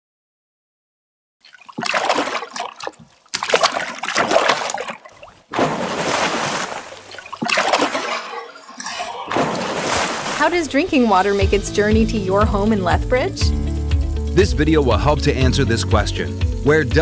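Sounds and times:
large water splashes: 0:01.4 - 0:12.0.

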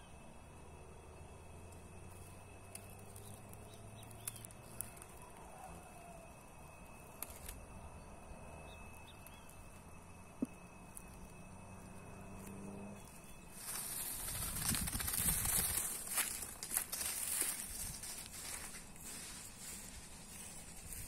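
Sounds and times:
soft bird chirps: 0:02.2 - 0:06.0, 0:07.8 - 0:09.8, 0:12.4 - 0:14.2.

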